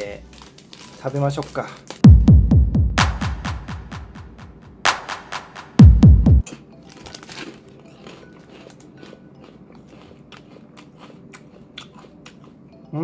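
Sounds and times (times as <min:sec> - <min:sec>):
faint background music: 0:00.0 - 0:13.0
person chewing crunchy cracker: 0:06.4 - 0:12.7.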